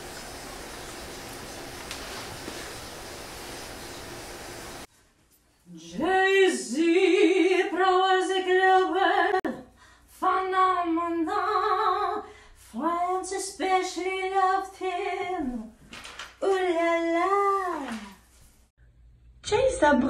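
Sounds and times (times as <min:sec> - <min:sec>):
woman singing a cappella: 0:05.7 - 0:15.8, 0:16.4 - 0:18.2
breaths: 0:09.6 - 0:10.2, 0:12.2 - 0:12.7.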